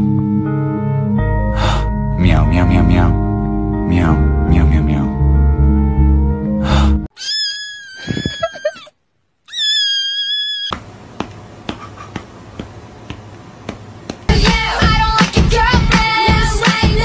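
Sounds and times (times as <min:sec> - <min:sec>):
cat meowing: 0:07.1 - 0:08.9, 0:09.5 - 0:10.8.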